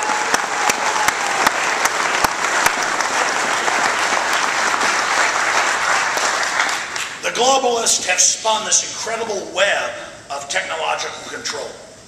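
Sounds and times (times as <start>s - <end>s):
audience applauding: 0.0s - 7.2s
sharp nearby claps: 0.0s - 7.2s.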